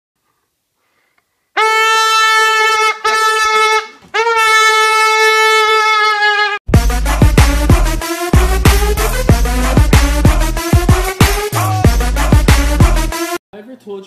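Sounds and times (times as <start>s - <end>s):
loud horn blasts: 1.6s - 10.7s.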